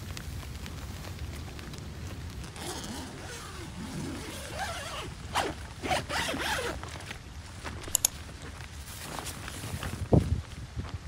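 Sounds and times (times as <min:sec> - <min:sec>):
zipper being pulled: 0:02.5 - 0:06.8, 0:07.8 - 0:08.1.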